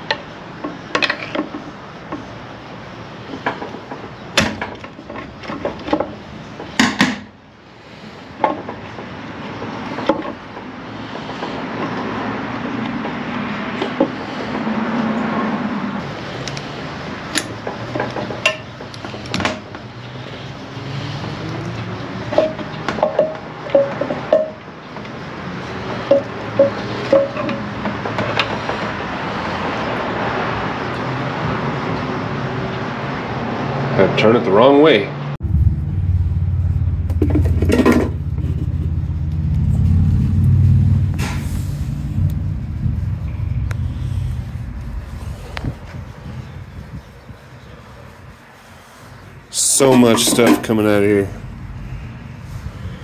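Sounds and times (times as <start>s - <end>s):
low mechanical rumble: 35.4s - 49.6s, 50.7s - 53.0s.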